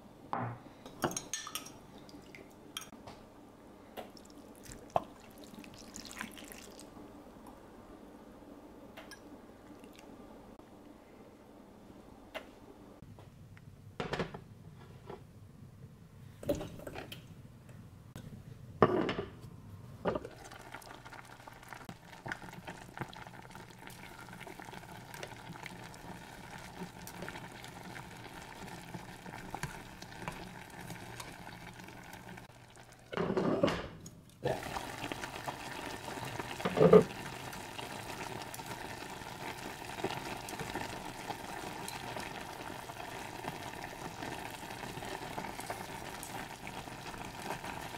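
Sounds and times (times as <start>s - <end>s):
pot simmering and bubbling: 4.0s - 7.0s, 20.1s - 33.8s, 34.4s - 47.9s.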